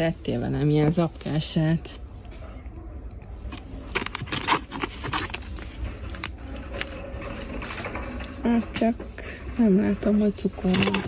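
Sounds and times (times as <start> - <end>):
food packets crackling: 3.5 - 8.4.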